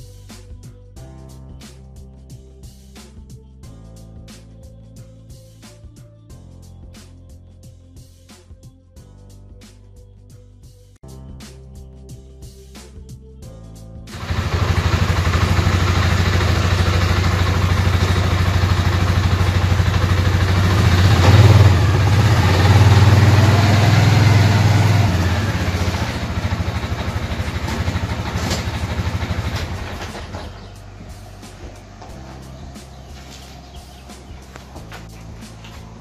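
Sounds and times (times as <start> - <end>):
quad bike engine revving: 14.1 - 30.7.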